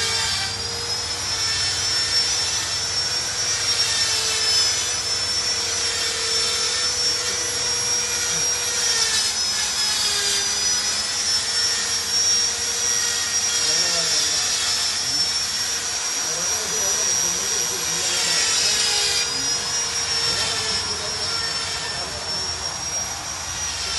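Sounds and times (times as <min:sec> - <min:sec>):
power tool whining and humming: 0:00.0 - 0:23.9.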